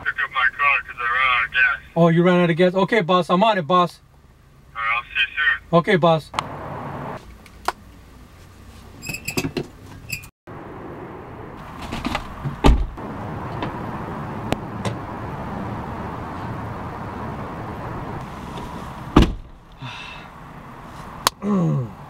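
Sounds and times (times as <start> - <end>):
car door shutting with a thump: 11.8 - 13.0, 18.5 - 19.6.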